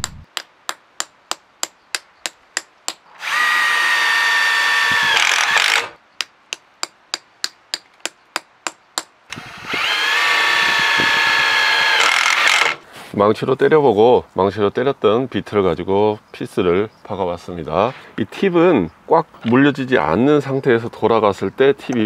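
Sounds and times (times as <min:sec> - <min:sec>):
impact driver running: 0:03.2 - 0:06.0, 0:09.3 - 0:12.8.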